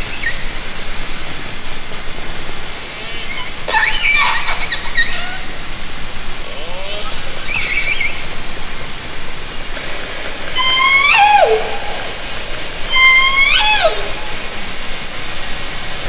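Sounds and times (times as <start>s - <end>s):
water hiss: 0.0s - 16.0s
high buzz of clicks: 2.6s - 3.8s, 6.4s - 8.3s
orca calls underwater: 10.5s - 14.6s.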